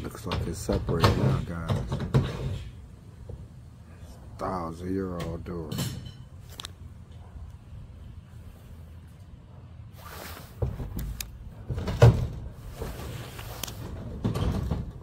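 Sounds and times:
garage door knocks and scrapes: 0.4 - 2.8, 11.6 - 15.0
garage door creak: 10.7 - 15.0.

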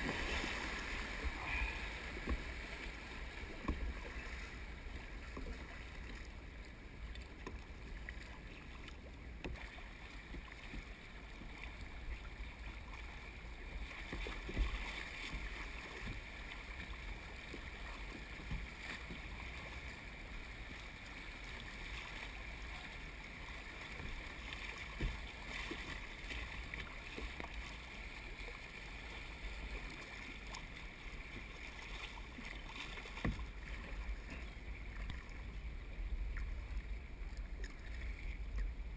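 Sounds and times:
river water rushing over gravel: 0.0 - 4.6
paddle splashes and knocks: 0.0 - 38.9.

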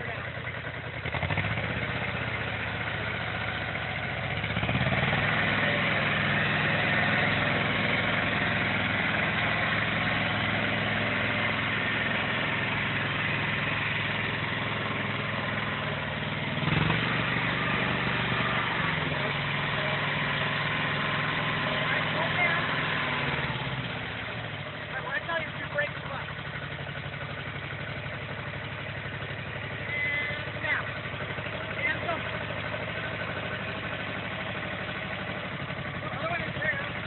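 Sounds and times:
tractor engine running: 0.0 - 37.0.

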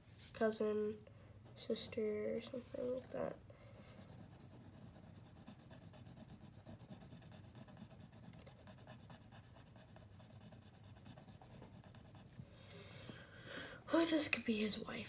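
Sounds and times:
low room hum: 0.0 - 15.0
pencil scratching on paper: 3.8 - 12.4.

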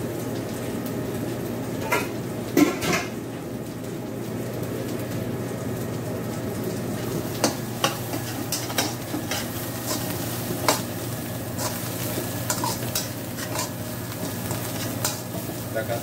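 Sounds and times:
paste sizzling in hot oil: 7.0 - 16.0
metal spatula scraping wok: 7.4 - 15.6.

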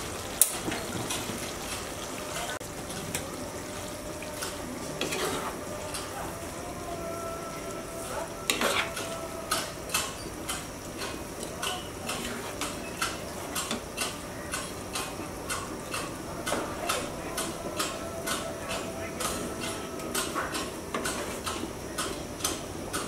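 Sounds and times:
spoon clinking and scraping pan: 4.4 - 6.1, 8.5 - 14.8.

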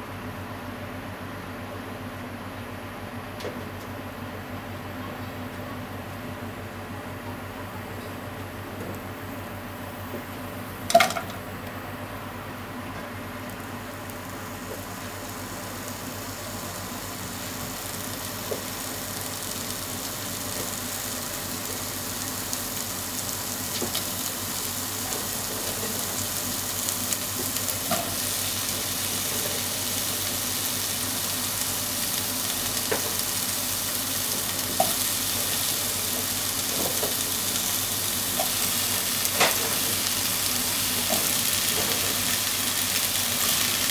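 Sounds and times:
oil sizzling in a pot: 13.1 - 43.9.

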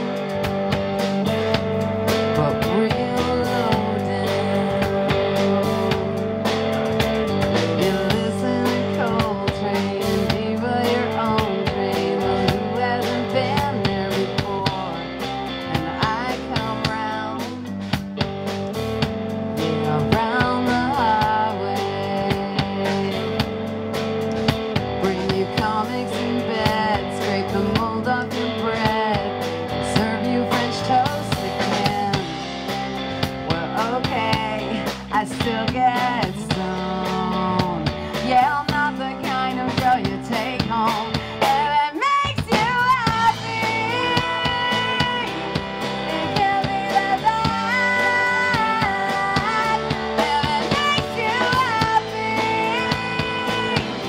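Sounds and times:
rock band playing: 0.0 - 54.0
woman singing: 1.1 - 18.0, 19.5 - 23.7, 24.3 - 54.0.

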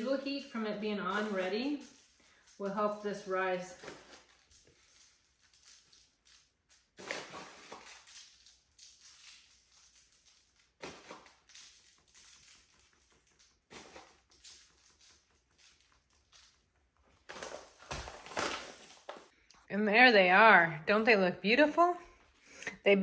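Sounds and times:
sugar sprinkling on baking sheet: 0.0 - 16.7.

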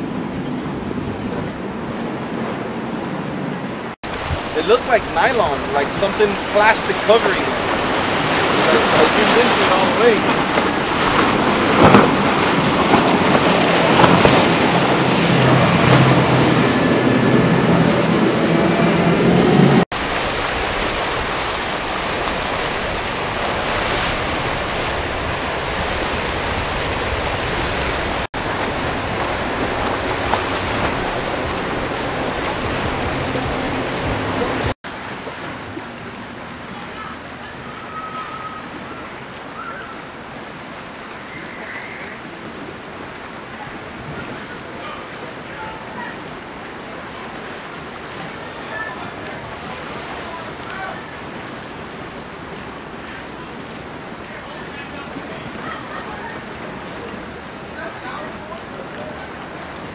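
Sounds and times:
wind on the microphone: 0.0 - 6.6
powerboat engine drone: 0.0 - 40.5
spray and waves hissing: 4.0 - 59.9.

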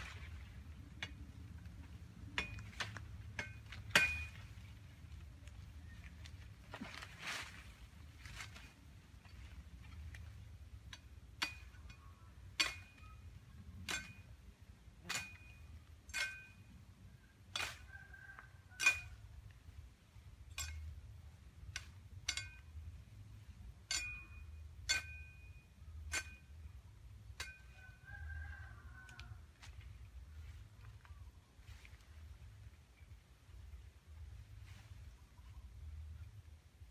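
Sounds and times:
machete chopping bamboo: 2.4 - 4.4.

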